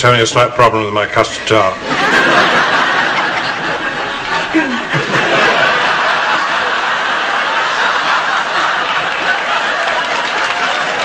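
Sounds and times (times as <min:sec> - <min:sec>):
audience laughter: 0:01.8 - 0:11.0
man chuckling: 0:04.2 - 0:05.4.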